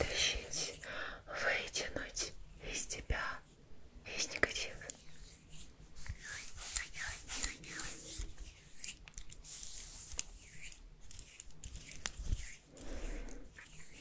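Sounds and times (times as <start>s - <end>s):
hissing rubbing strokes: 4.9s - 14.0s.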